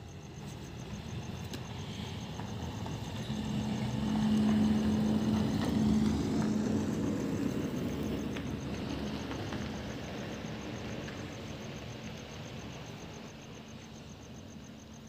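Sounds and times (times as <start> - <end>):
vehicle engine hum passing by: 0.2 - 14.9.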